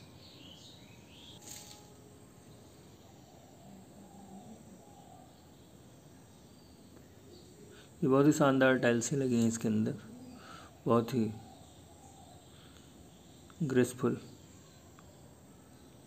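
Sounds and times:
faint distant sounds: 0.0s - 16.0s
faint high chirps: 9.5s - 16.0s.

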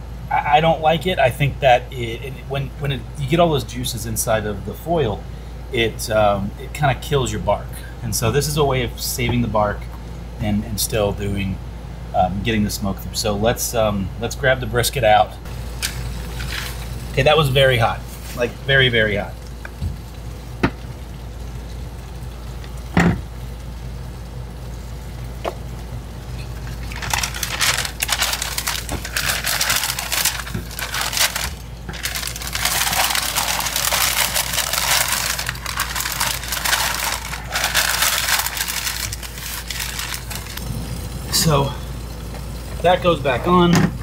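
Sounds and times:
paper crinkling and rustling: 26.6s - 40.6s.

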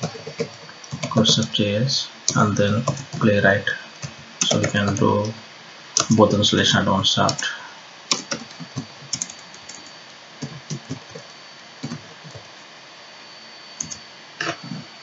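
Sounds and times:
faint steady hiss: 0.0s - 15.0s
thin high whine: 0.0s - 15.0s
keyboard typing clicks: 4.4s - 5.1s, 8.1s - 12.4s, 13.8s - 14.0s.

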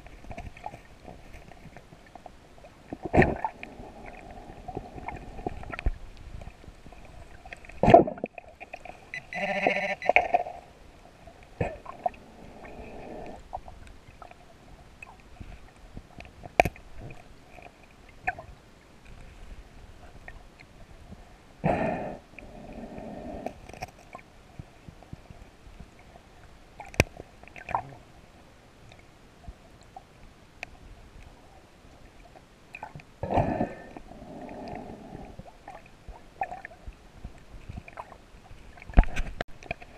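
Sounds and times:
gurgling bubbles: 2.9s - 6.0s
diver breathing through regulator: 12.2s - 13.4s, 21.6s - 23.6s, 33.2s - 35.4s.

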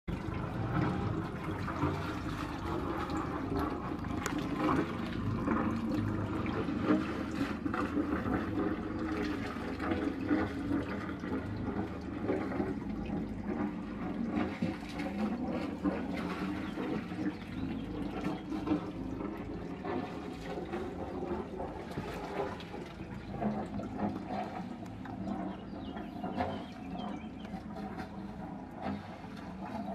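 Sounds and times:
boat engine running: 0.0s - 29.9s
exhaust water splashing: 0.0s - 29.9s
propeller churning water: 0.0s - 29.9s.

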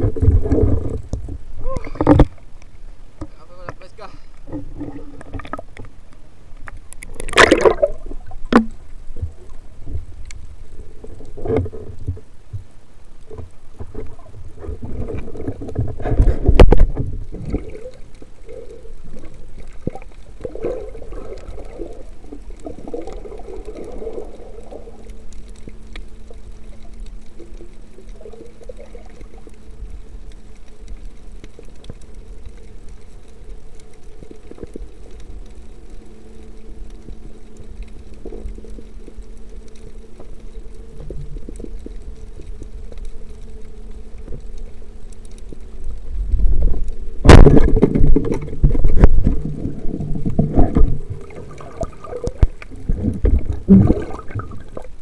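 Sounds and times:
muffled rush of water: 0.0s - 55.0s
muffled underwater water movement: 0.0s - 55.0s
steady low hum: 0.0s - 55.0s.

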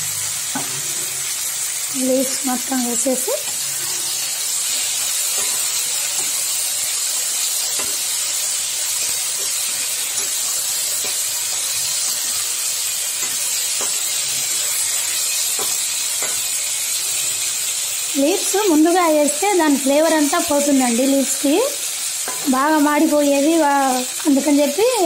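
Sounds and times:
vegetables sizzling in oil: 0.0s - 25.0s
spatula scraping and clicking: 5.2s - 6.4s.

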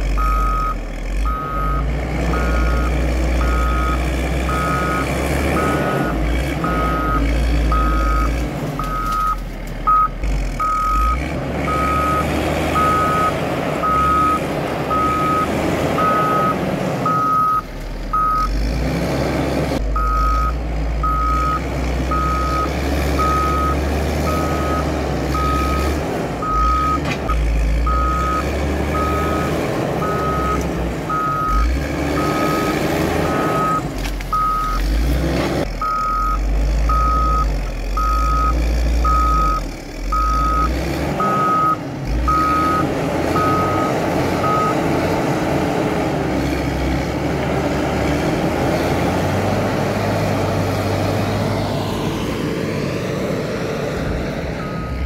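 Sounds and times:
diesel engine running under load: 0.0s - 55.0s
backup alarm beeping: 54.6s - 55.0s.

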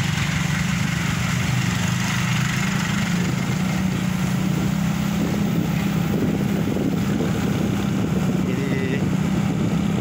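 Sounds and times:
motorcycle engine cruising: 0.0s - 10.0s
wind and road noise: 0.0s - 10.0s.

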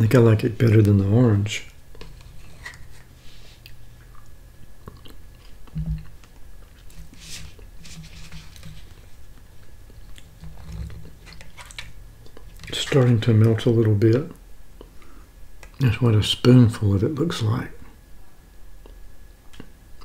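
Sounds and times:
spoon scraping plastic cup: 2.0s - 3.1s, 6.8s - 9.2s, 10.4s - 11.9s.

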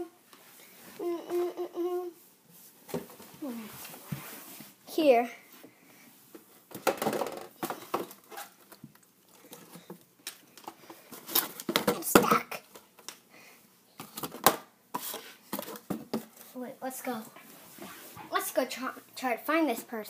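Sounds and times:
toys knocking and rustling: 2.9s - 3.4s, 6.3s - 13.1s, 14.0s - 17.2s.

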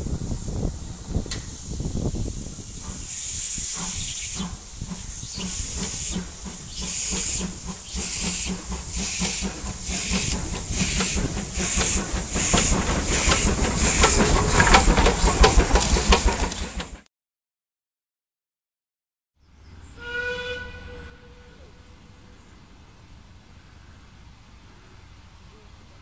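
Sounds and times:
steam locomotive chuffing: 0.1s - 17.1s.

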